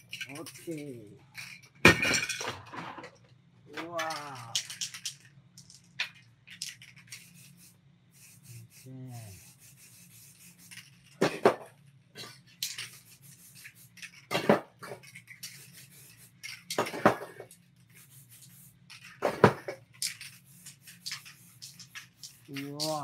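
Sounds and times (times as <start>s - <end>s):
spray-paint cans clanking: 0.0s - 2.5s, 3.9s - 8.8s, 9.4s - 23.0s
aerosol spraying hiss: 7.0s - 11.0s, 12.6s - 14.3s, 14.9s - 23.0s.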